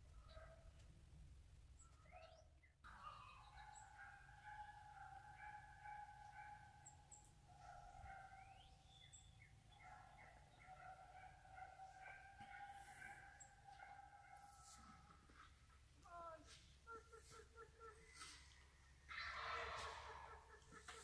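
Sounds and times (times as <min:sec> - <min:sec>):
bird chirps: 0:01.7 - 0:15.0.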